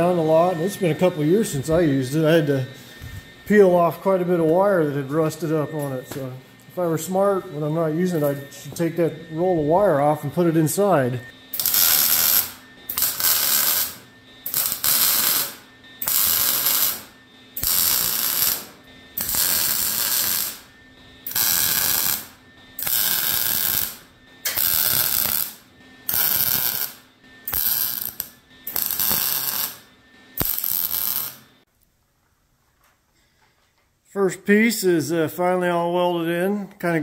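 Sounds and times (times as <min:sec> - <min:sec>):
welding arc crackle: 0:11.6 - 0:31.5.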